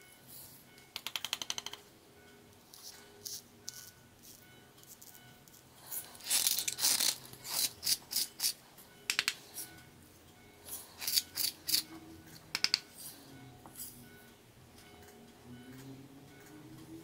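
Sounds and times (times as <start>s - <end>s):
salt grinder crunching salt: 6.2s - 8.6s, 11.0s - 11.8s.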